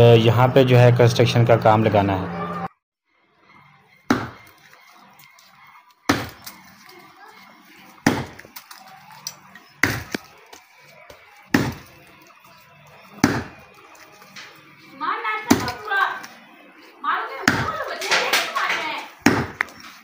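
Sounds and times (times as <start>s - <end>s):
axe chopping into tree: 4.1s - 4.4s, 6.1s - 6.6s, 8.0s - 8.6s, 9.8s - 10.2s, 11.5s - 11.9s, 13.2s - 13.6s, 19.2s - 19.7s.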